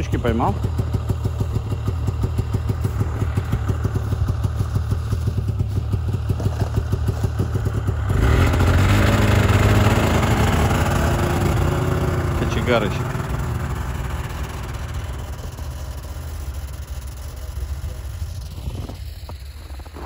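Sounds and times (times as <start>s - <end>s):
snowmobile engine idling and revving: 0.0s - 20.0s.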